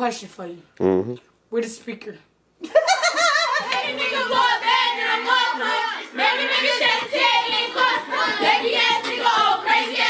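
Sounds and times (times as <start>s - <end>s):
women singing together: 3.2s - 10.0s.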